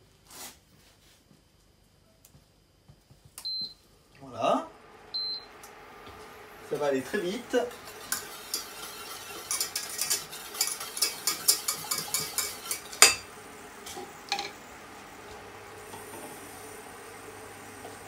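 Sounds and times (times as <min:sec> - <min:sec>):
whisk clinking in steel saucepan: 0:07.6 - 0:13.3.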